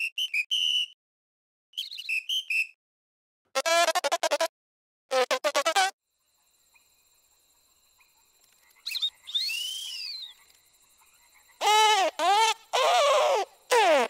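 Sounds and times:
rising and falling whistle: 0:00.0 - 0:01.0, 0:09.0 - 0:10.3
squeaky cartoon insect voice: 0:03.6 - 0:04.5, 0:05.1 - 0:06.0, 0:11.6 - 0:14.0.

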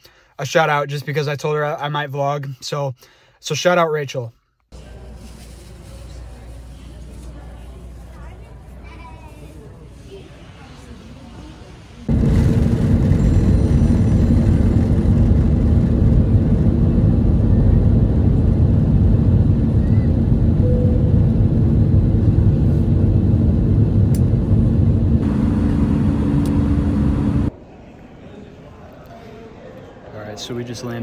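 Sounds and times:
jet airliner cabin noise: 0:05.0 - 0:27.5.

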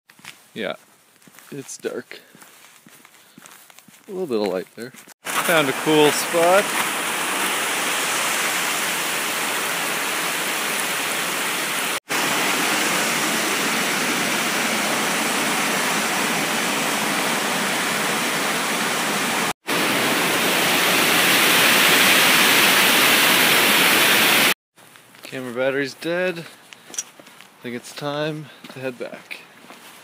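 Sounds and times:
waterfall pouring over rocks: 0:05.2 - 0:24.6.

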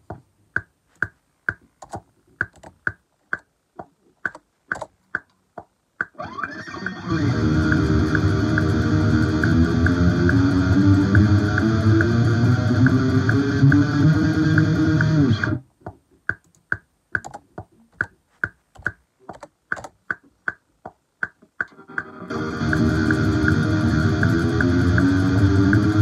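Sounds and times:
computer keyboard clicks: 0:01.8 - 0:03.5, 0:04.2 - 0:05.3, 0:16.3 - 0:20.6
electric guitar playing: 0:06.2 - 0:15.6, 0:21.7 - 0:26.0
steady tick: 0:06.8 - 0:26.0.

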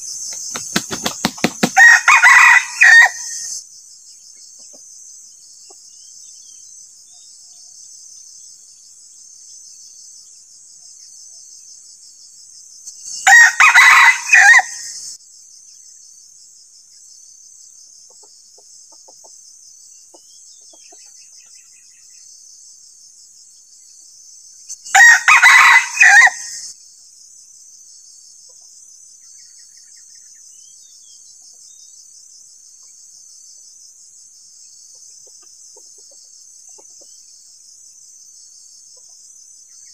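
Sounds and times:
high insect trill: 0:00.0 - 0:39.9
rooster crowing: 0:01.5 - 0:03.5, 0:13.2 - 0:15.0, 0:24.9 - 0:26.7.

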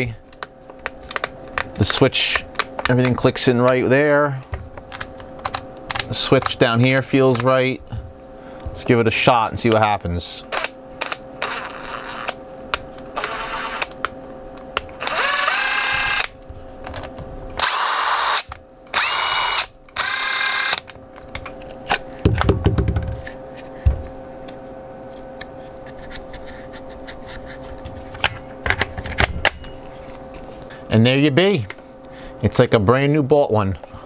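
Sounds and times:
impact driver motor whining: 0:10.5 - 0:12.4, 0:13.2 - 0:14.0, 0:14.9 - 0:16.4, 0:17.6 - 0:20.8.

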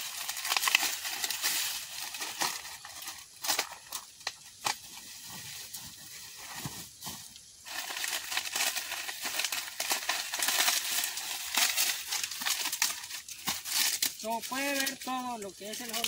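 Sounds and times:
corn ears snapping off stalks: 0:00.0 - 0:05.0, 0:08.2 - 0:16.0
dry corn husks rustling: 0:00.0 - 0:16.0.

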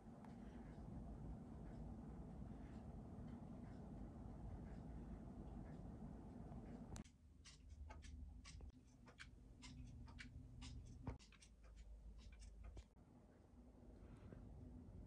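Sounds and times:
wall clocks ticking: 0:00.0 - 0:13.7.

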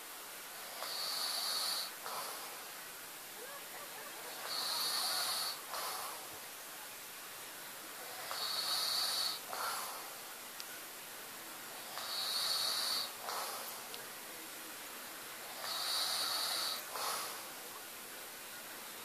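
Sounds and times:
man snoring: 0:00.6 - 0:02.5, 0:04.4 - 0:06.2, 0:08.0 - 0:10.0, 0:11.8 - 0:13.8, 0:15.4 - 0:17.5.

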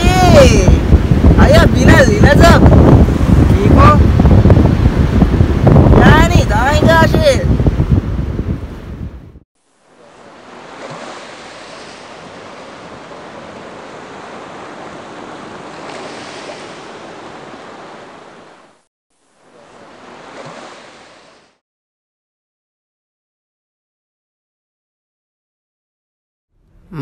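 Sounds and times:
ocean surf washing on beach: 0:00.0 - 0:09.1, 0:09.9 - 0:18.8, 0:19.5 - 0:21.6.

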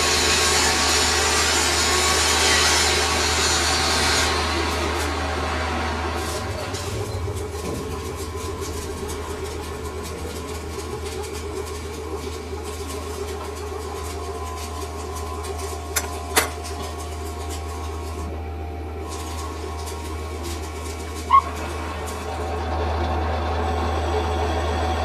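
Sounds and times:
metal lathe humming: 0:00.0 - 0:25.0.

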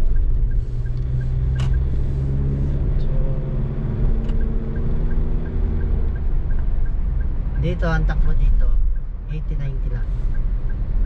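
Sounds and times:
car engine hum: 0:00.0 - 0:11.0
road noise: 0:00.0 - 0:11.0
faint regular ticking: 0:04.0 - 0:11.0.

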